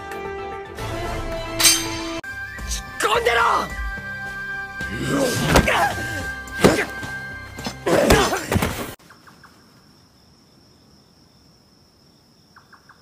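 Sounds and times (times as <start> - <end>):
sheathed swords striking: 1.6 - 2.2
night insects: 3.9 - 13.0
person shouting: 5.0 - 7.0.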